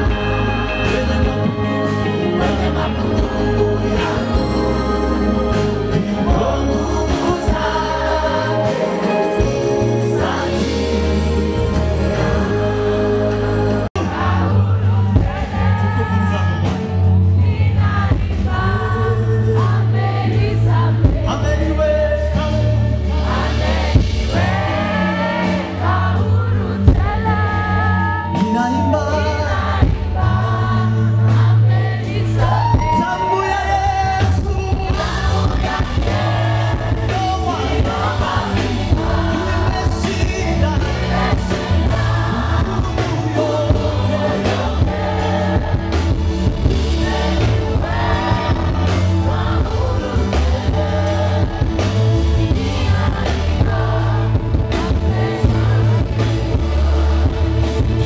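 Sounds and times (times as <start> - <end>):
bass line: 0.0 - 58.0
gospel band music: 0.0 - 58.0
person singing lead: 32.4 - 35.2.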